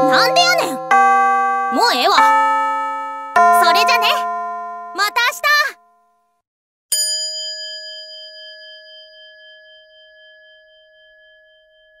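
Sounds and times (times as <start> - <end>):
bell ringing: 0.0 - 6.0, 6.9 - 12.0.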